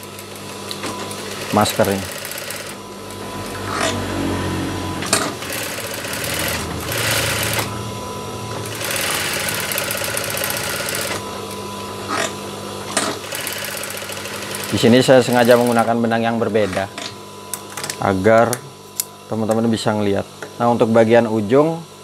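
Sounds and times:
motor hum: 0.0s - 17.6s
sewing machine stitching: 0.8s - 2.8s, 5.0s - 7.7s, 8.6s - 11.2s, 12.9s - 15.9s.

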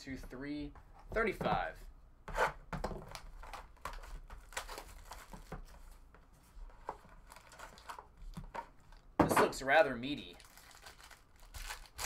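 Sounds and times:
cardboard and wrapping rustling: 2.9s - 8.6s, 10.2s - 12.0s.

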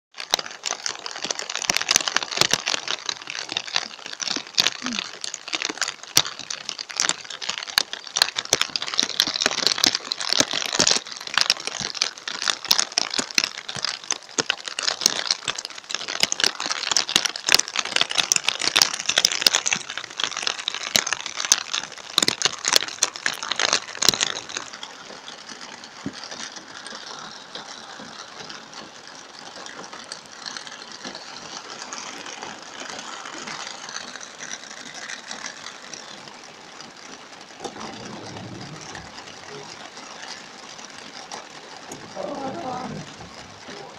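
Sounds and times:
heavy rain on car roof: 0.1s - 43.9s.

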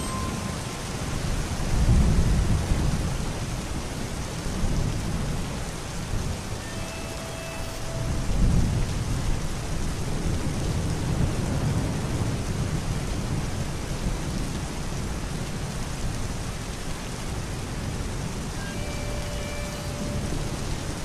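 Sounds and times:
steady rain: 0.0s - 21.0s
low roll of thunder: 8.3s - 15.9s.

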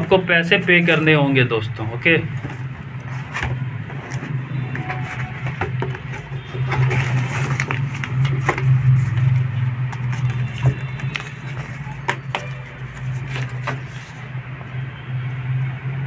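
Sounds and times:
cardboard and plastic wrap rustling: 1.8s - 14.4s.

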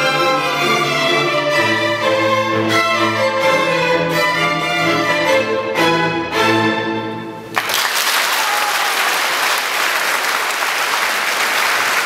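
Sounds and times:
applause: 7.5s - 12.0s.

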